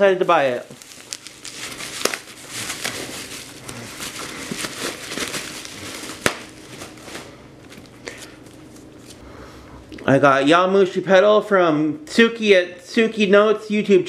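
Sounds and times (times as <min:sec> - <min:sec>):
plastic packing crinkling: 0:00.1 - 0:09.2
plastic packing snap: 0:00.7 - 0:03.0, 0:04.4 - 0:06.9.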